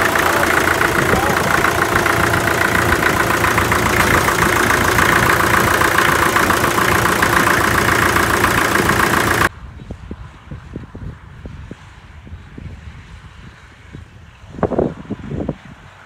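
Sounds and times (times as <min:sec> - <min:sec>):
tractor engine running: 0:00.0 - 0:09.5.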